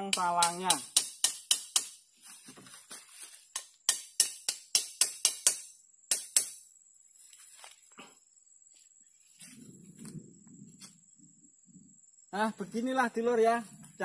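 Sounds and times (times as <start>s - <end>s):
metal spout tapped into bark: 0.0s - 1.9s.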